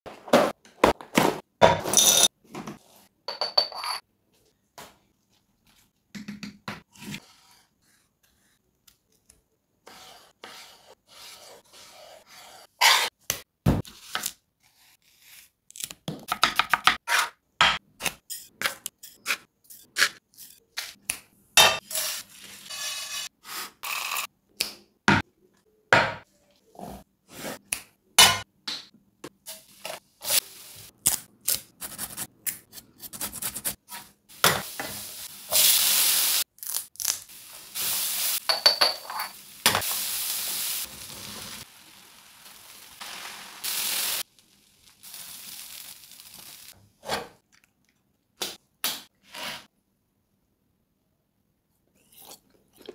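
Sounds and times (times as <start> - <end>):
onions sizzling in oil: 34.3 - 36.4, 37.2 - 38.6, 39.2 - 46.8.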